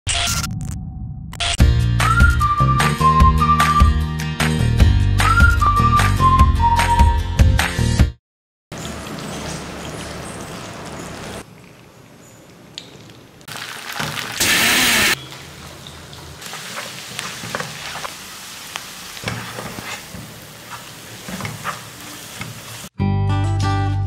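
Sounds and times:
onions sizzling in hot oil: 0:16.4 - 0:23.0
spatula scraping pan: 0:16.5 - 0:18.2, 0:19.2 - 0:22.7.

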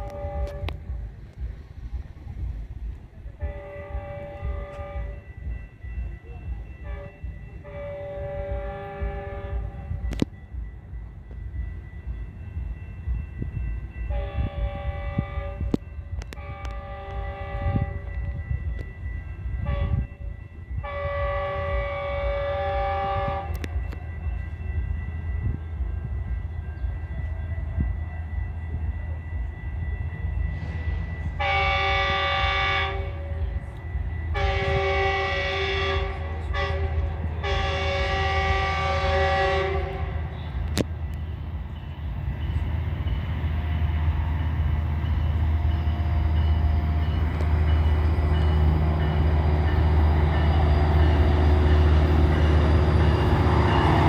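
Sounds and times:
train horn chord blasts: 0:00.0 - 0:01.0, 0:03.4 - 0:05.4, 0:06.8 - 0:10.2, 0:14.1 - 0:18.5, 0:19.6 - 0:24.0, 0:30.9 - 0:33.6, 0:34.3 - 0:40.8
low train rumble: 0:00.0 - 0:54.0.

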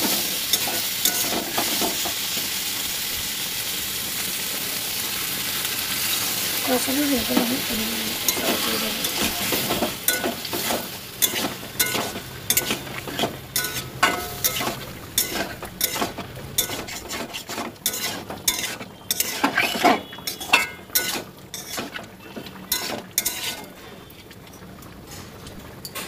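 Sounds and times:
spatula scraping a pan: 0:00.0 - 0:02.3, 0:07.2 - 0:24.3
food sizzling in a pan: 0:00.0 - 0:25.8.

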